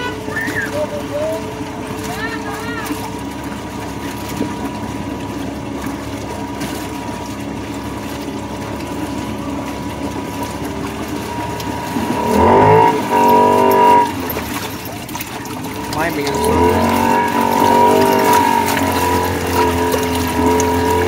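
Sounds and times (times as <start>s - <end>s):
utility vehicle engine running: 0.0s - 21.0s
engine revving: 10.3s - 14.7s, 15.7s - 21.0s.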